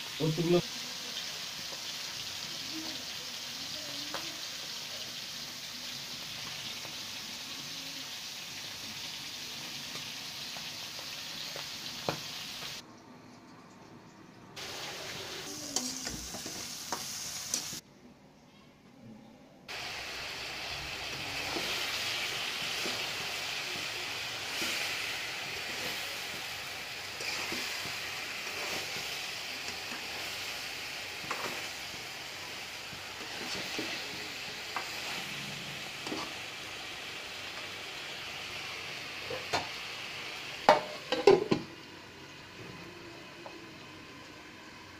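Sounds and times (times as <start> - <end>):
vegetables sizzling in a wok: 0.0 - 12.8, 14.6 - 17.8, 19.7 - 44.9
metal spatula scraping a pan: 27.1 - 29.1.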